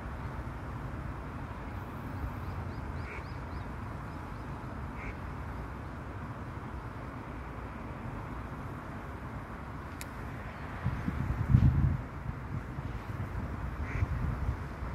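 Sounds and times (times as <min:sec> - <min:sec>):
stream water flowing: 0:00.0 - 0:14.9
short bird calls: 0:02.4 - 0:03.7
wind buffeting microphone: 0:10.2 - 0:14.9.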